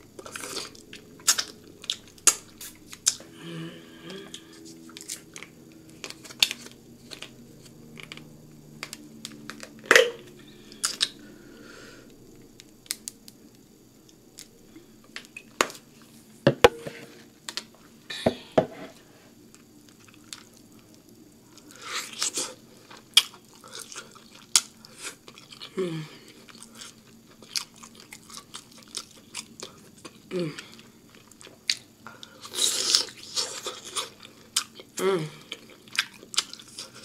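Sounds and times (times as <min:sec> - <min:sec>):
chewing: 0:21.6 - 0:25.7, 0:26.3 - 0:37.0.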